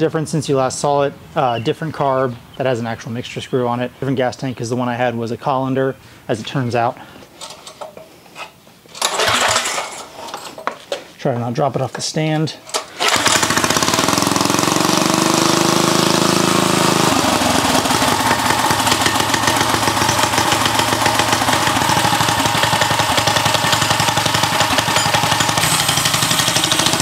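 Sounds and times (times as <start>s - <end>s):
small engine running: 13.0s - 27.0s.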